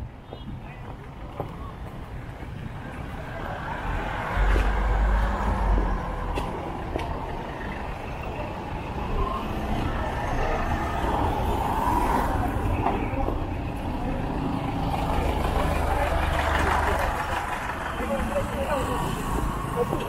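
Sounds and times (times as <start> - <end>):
vehicle engines in street traffic: 0.0 - 20.0.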